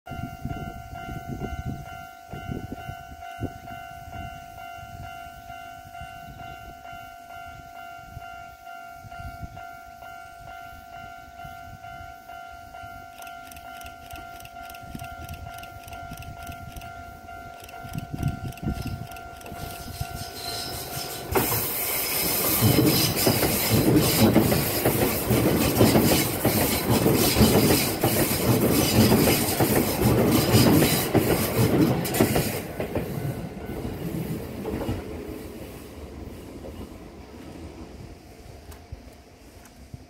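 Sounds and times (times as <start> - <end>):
level-crossing alarm ringing: 0.1 - 23.8
electric train running: 12.8 - 35.0.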